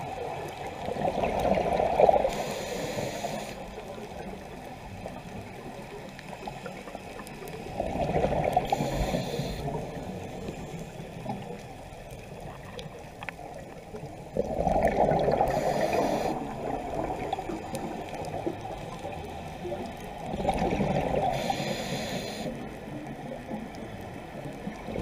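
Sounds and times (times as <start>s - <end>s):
diver breathing through regulator: 2.2s - 3.7s, 8.6s - 9.9s, 15.3s - 16.5s, 21.2s - 22.6s.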